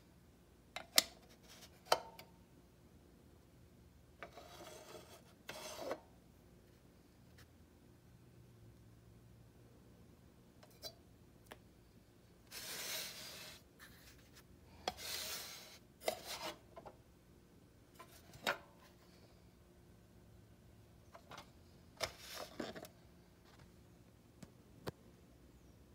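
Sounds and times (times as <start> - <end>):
rubbing or scraping: 4.2 - 6.1, 12.5 - 16.7.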